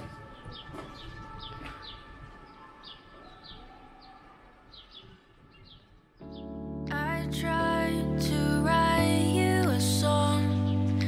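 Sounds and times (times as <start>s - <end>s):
birds chirping: 0.0s - 7.4s.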